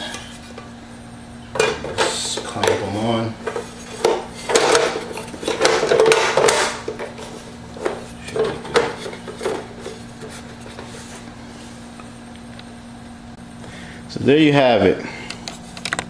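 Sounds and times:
grill plates clattering and clicking: 0:01.5 - 0:11.1.

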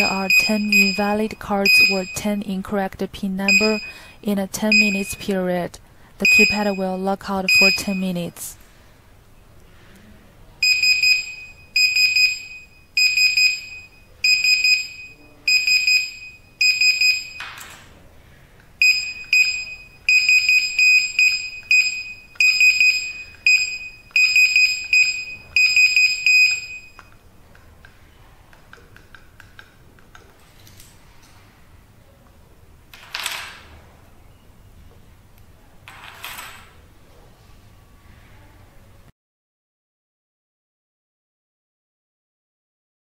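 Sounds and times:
keypad buzzer beeping: 0:00.0 - 0:02.4, 0:03.4 - 0:04.1, 0:04.7 - 0:05.4, 0:06.2 - 0:08.2, 0:10.6 - 0:17.6, 0:18.8 - 0:27.1.

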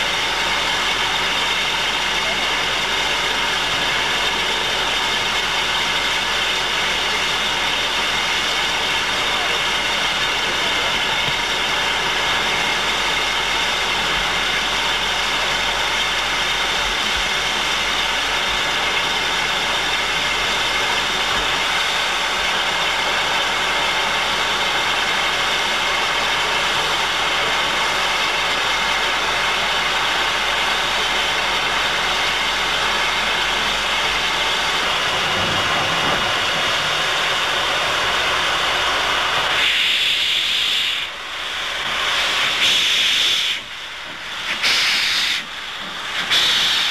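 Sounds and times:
steam hissing: 0:00.0 - 0:46.9
steam blasting out: 0:31.5 - 0:46.9.

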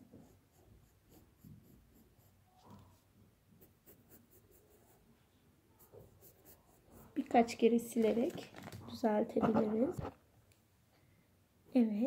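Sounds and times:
pencil scratching on paper: 0:00.0 - 0:05.1, 0:05.8 - 0:07.6, 0:09.4 - 0:10.2.

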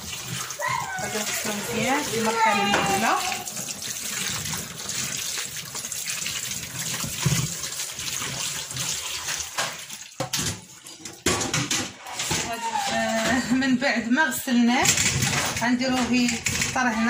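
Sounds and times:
tap water splashing into bowl: 0:00.0 - 0:11.9.

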